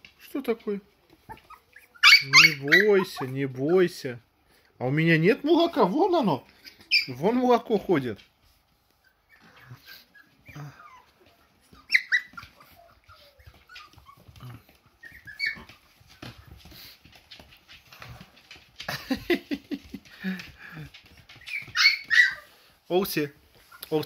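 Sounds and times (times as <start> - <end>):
puppies whimpering and squeaking: 1.0 - 4.2, 6.5 - 7.7, 8.6 - 18.0, 20.7 - 22.8
puppy yelp: 1.1 - 4.0, 6.6 - 7.2, 9.0 - 16.6, 21.3 - 22.6.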